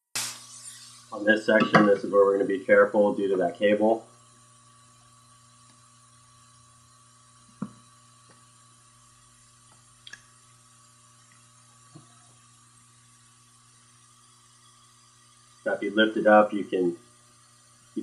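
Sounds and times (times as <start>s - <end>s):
room hum: 0.2s - 18.0s.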